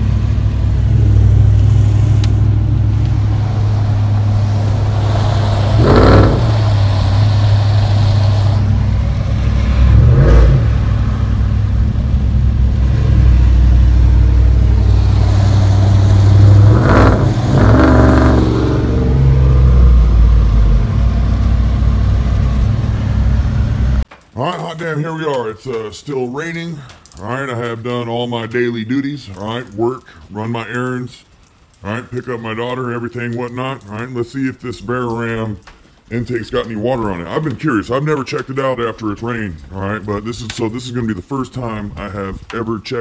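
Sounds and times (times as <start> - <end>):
truck engine drone from inside cab: 0.0 - 24.0.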